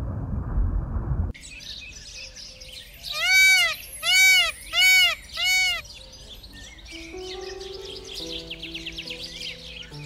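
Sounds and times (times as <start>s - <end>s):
peacock calling: 3.0s - 6.4s.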